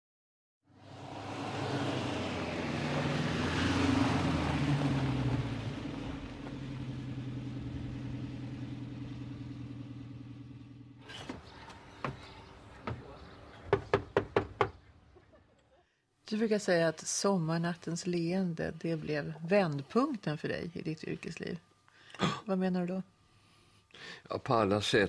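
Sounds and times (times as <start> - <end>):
vehicle engine running: 0.7 - 13.3.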